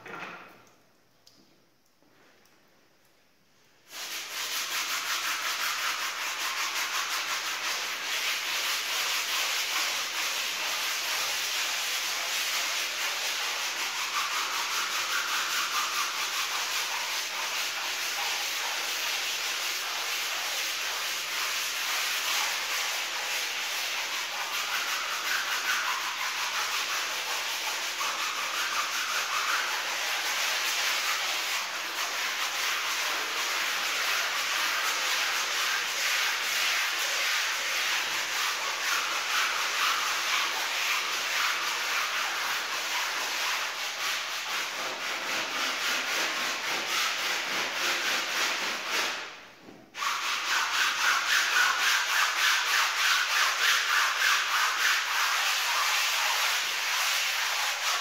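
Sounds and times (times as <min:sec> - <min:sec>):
brush scrubbing wet rug: 0:03.9 - 0:49.4, 0:50.0 - 0:58.0.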